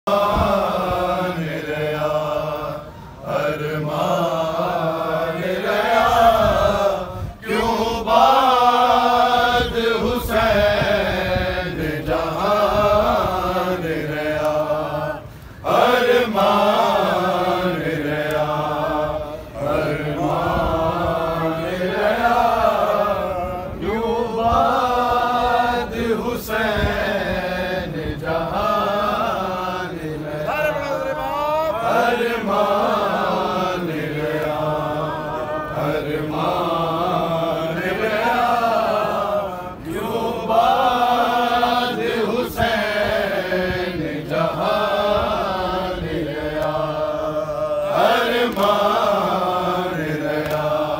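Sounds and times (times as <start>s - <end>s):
men chanting a lament: 0.1s - 50.9s.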